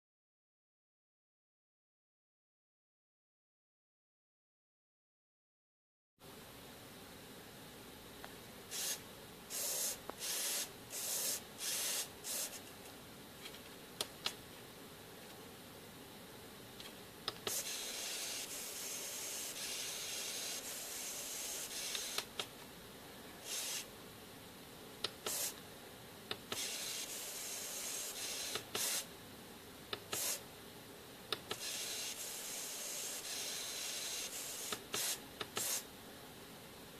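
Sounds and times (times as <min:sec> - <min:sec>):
servos whirring: 0:17.3 - 0:22.5, 0:26.4 - 0:29.0, 0:31.3 - 0:35.8.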